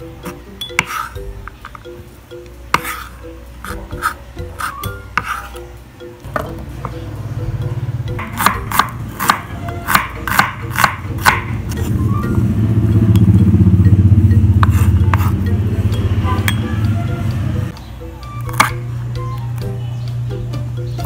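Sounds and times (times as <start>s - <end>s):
background music: 0.0s - 21.0s
knife chopping on wooden board: 2.7s - 3.1s, 3.7s - 5.5s, 8.2s - 11.5s, 14.6s - 15.4s, 18.5s - 18.8s
low steady rumble: 11.8s - 17.7s.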